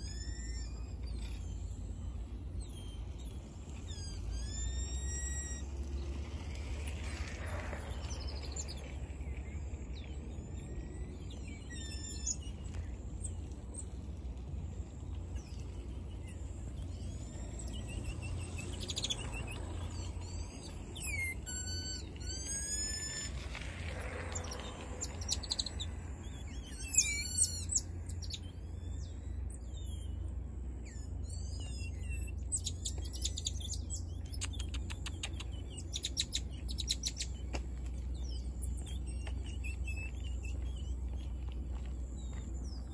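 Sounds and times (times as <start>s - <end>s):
high-pitched chirping and whistles: 0.0s - 5.8s, 7.0s - 13.9s, 15.4s - 23.6s, 24.2s - 41.4s
steady low rumble: 0.0s - 42.9s
trills of clicks: 31.4s - 42.9s.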